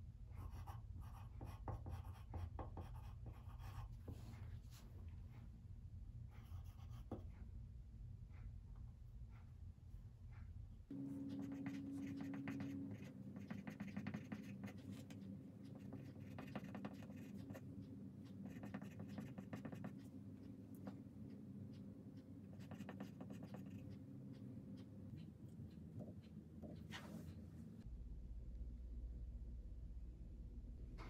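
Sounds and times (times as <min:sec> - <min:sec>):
faint low hum: 0:00.0 - 0:31.0
pencil scratching on paper: 0:00.4 - 0:04.8, 0:06.3 - 0:07.4, 0:10.9 - 0:27.4.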